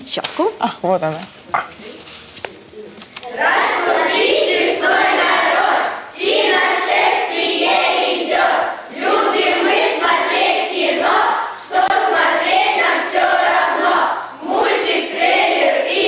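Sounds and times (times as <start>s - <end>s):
children chanting a cheer: 3.2s - 16.0s.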